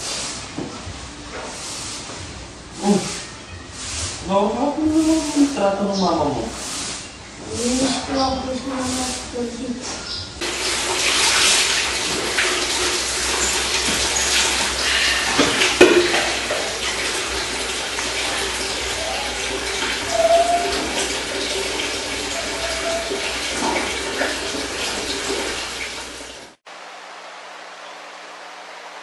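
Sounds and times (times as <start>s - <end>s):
water splashing in a bathtub: 10.4s - 26.6s.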